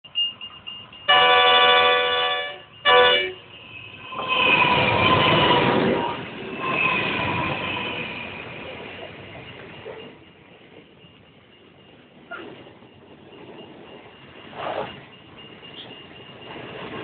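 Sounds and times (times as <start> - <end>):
level-crossing bell ringing: 0.0 - 17.0
train rolling past: 0.1 - 17.0
locomotive horn blasts: 1.1 - 3.4.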